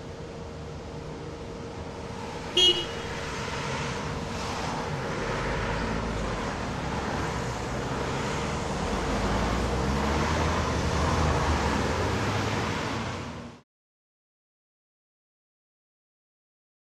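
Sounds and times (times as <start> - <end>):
cars driving over level crossing: 0.2 - 13.5.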